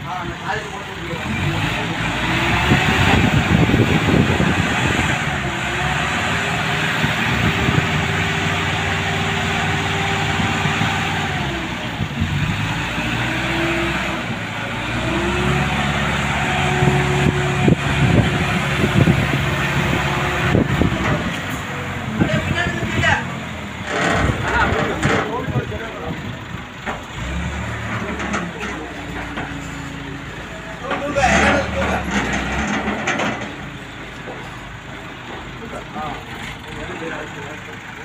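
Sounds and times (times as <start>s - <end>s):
engine humming: 0.0s - 38.0s
knocks and clanks: 23.8s - 25.8s, 26.8s - 29.9s, 30.8s - 35.5s.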